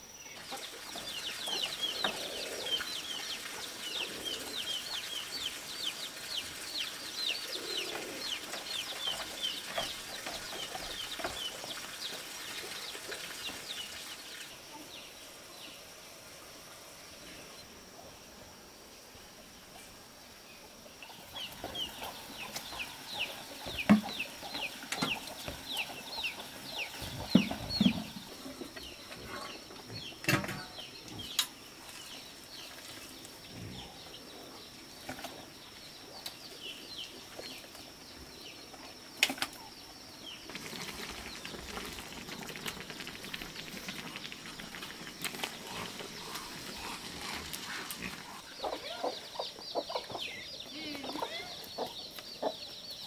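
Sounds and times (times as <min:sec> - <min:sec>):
birds chirping: 0:00.0 - 0:18.2, 0:19.5 - 0:53.0
chickens clucking: 0:00.4 - 0:13.9, 0:20.7 - 0:31.4, 0:43.6 - 0:53.0.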